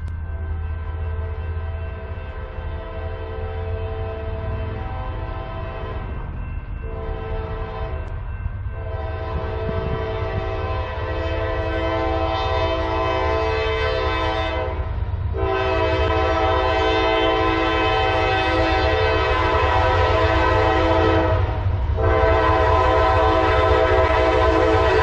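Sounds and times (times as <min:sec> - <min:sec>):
steady low rumble: 0:00.0 - 0:12.2
locomotive air horn chord: 0:00.3 - 0:06.2, 0:06.8 - 0:25.0.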